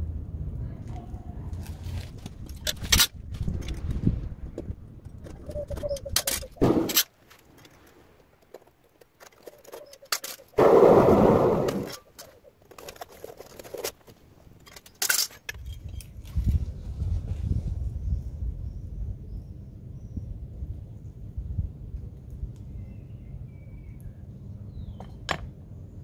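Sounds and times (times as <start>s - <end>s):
burner flame rushing: 10.6s - 12.0s.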